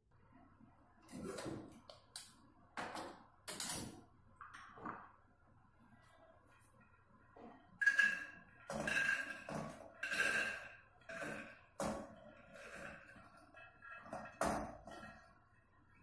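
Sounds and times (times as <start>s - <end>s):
peas rattling into metal pot: 7.8s - 10.6s.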